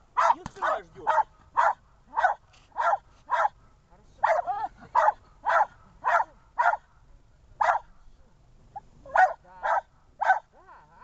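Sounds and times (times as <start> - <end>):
dog barking: 0.2 - 3.6, 4.2 - 6.9, 7.6 - 7.9, 9.1 - 10.5.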